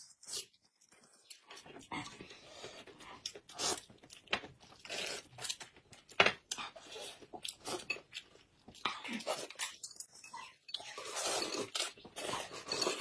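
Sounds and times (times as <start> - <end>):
noodles being slurped: 10.7 - 13.0.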